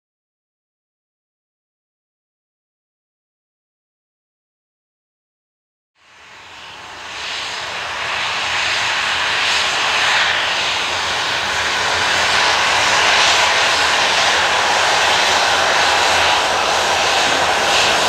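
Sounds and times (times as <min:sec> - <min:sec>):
jet engine whine: 0:06.0 - 0:18.0.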